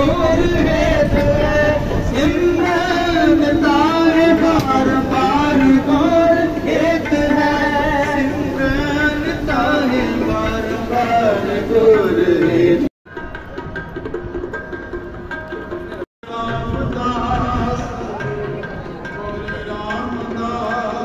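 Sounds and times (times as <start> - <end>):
person chanting a hymn: 0.0 - 12.9.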